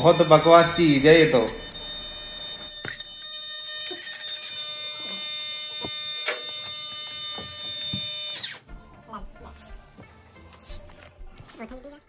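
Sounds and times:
air compressor buzzing: 0.0 - 8.7.

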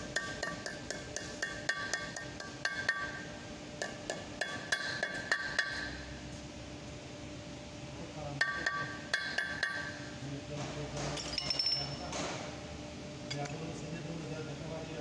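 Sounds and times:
hammer striking metal hub: 0.0 - 6.0, 8.4 - 10.0, 11.1 - 12.2
metal hub ringing: 0.0 - 6.0, 8.4 - 10.1, 11.2 - 12.1.

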